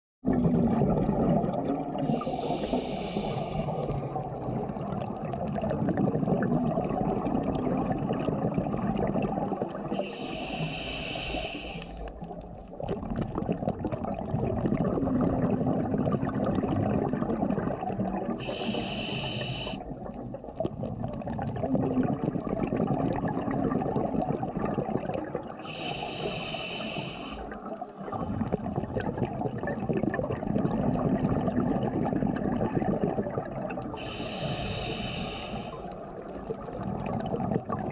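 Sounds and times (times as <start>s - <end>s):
exhaled bubbles rumbling: 0.2s - 37.9s
regulator inhale hiss: 2.1s - 4.0s, 9.9s - 12.1s, 18.4s - 19.8s, 25.6s - 27.6s, 34.0s - 36.0s.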